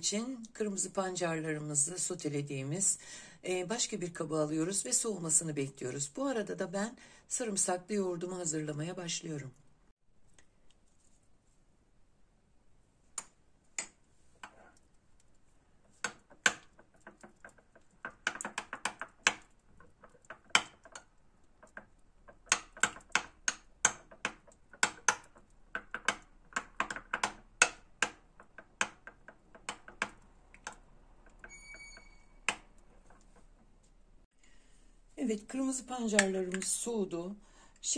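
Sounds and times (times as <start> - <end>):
short high beep: 31.5 - 32.3.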